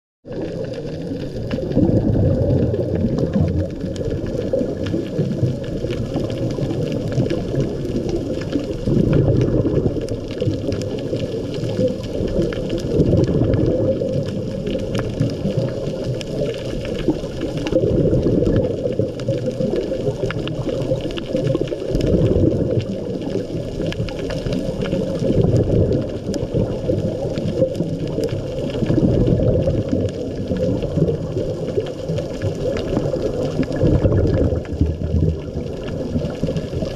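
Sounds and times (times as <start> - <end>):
underwater bubbling: 0.2 - 36.9.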